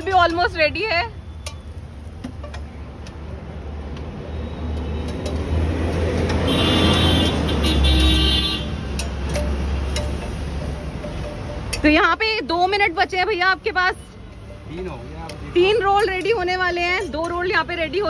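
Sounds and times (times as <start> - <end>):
vehicle horn: 6.4 - 8.8.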